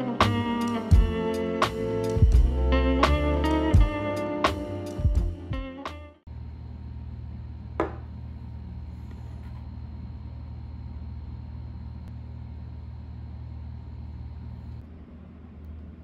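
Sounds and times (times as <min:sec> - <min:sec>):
low mechanical hum: 0:06.3 - 0:16.0.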